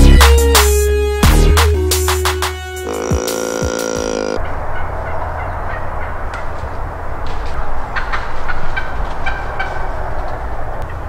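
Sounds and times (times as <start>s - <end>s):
wild turkey calling: 2.8s - 6.6s.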